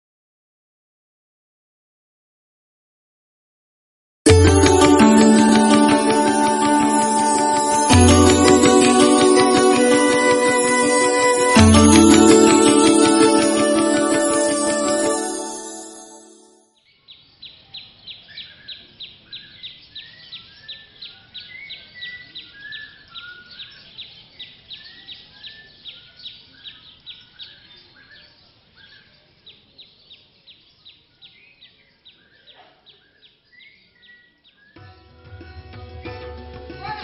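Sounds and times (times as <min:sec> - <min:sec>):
music: 0:04.3 - 0:16.7, 0:34.8 - 0:37.0.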